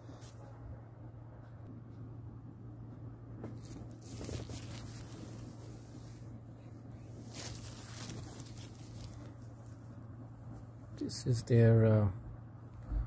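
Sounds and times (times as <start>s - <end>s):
steady low hum: 0.0s - 13.0s
fabric rustling: 3.5s - 10.8s.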